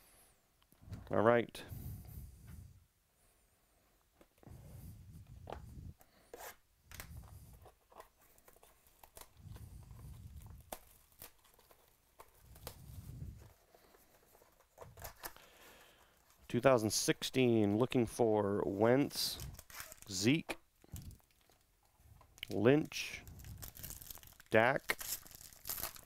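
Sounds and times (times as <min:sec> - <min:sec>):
tape tearing: 0:06.3 - 0:13.0, 0:14.4 - 0:15.4, 0:19.4 - 0:20.2, 0:23.4 - 0:26.0.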